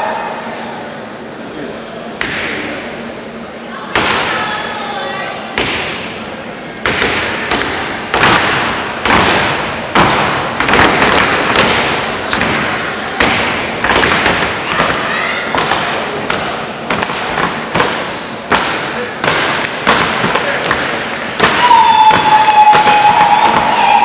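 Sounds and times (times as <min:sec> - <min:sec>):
crowd noise: 0:00.0 - 0:24.0.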